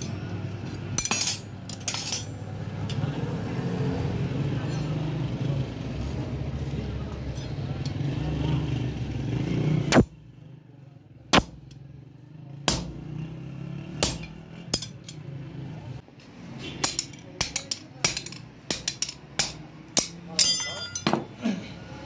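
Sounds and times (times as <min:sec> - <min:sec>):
hammer striking metal on anvil: 0:11.3 - 0:11.8, 0:12.6 - 0:13.1, 0:14.0 - 0:15.2, 0:16.8 - 0:21.3.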